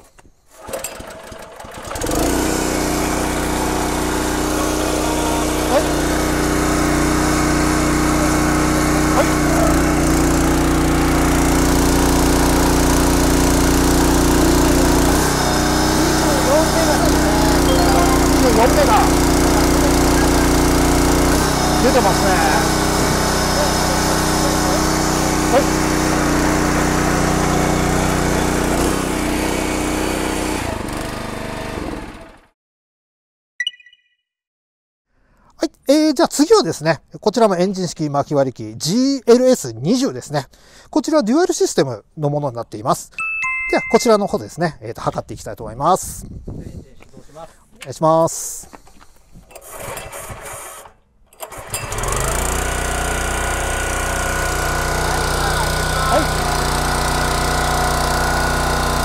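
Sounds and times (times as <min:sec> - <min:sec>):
log splitter engine running: 0:00.6 - 0:32.4, 0:49.6 - 0:59.0
short bright chime: 0:17.6 - 0:19.0, 0:33.6 - 0:34.2, 0:43.2 - 0:44.2.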